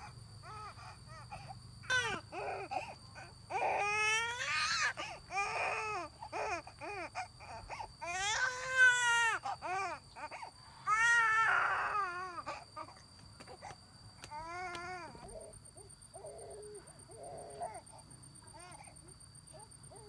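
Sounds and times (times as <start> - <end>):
infant crying: 0.4 - 13.0, 14.3 - 15.5, 17.2 - 17.9, 18.6 - 18.9.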